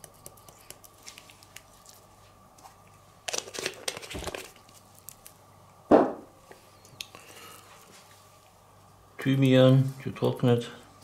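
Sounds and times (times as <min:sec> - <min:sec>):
packaging crinkling and rustling: 0:02.6 - 0:05.3
sharp knock: 0:05.9 - 0:06.2.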